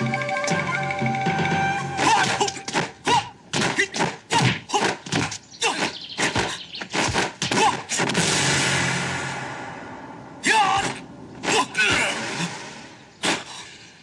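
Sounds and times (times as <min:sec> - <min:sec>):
punch and block impacts: 0:02.0 - 0:09.1.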